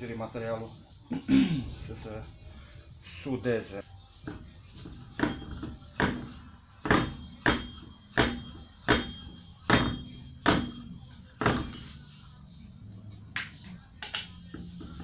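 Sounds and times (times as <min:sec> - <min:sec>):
metallic knocks of wheel bolts: 0:04.3 - 0:11.8.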